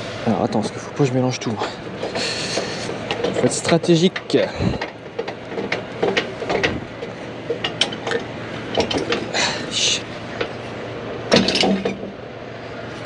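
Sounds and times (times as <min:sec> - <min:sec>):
metal crank clicks and clanks: 0:02.0 - 0:09.4, 0:11.3 - 0:12.1.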